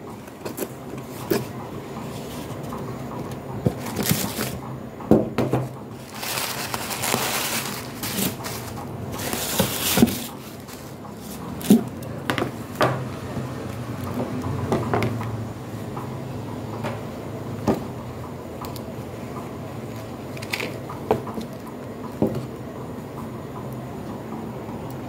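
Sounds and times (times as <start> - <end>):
tissue paper rustling: 3.7 - 4.6, 5.9 - 12.0
cardboard box being handled: 5.9 - 12.0.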